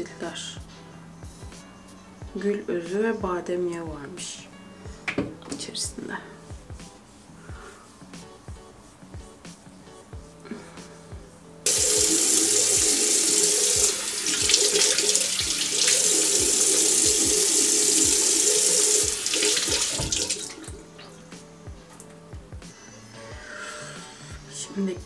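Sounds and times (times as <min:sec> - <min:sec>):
tap running into a sink: 0:11.7 - 0:20.8
water splashing: 0:11.7 - 0:21.2.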